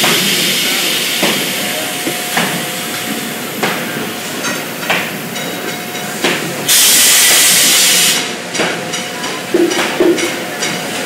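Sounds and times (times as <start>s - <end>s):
machinery noise: 0.0s - 11.0s
loud hiss of escaping air: 6.7s - 8.3s.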